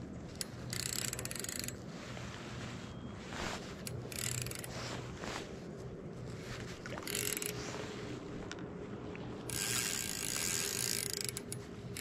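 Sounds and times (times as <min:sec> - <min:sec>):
fishing reel drag ratcheting: 0:00.4 - 0:01.8, 0:03.8 - 0:04.7, 0:07.0 - 0:07.6, 0:09.5 - 0:12.0.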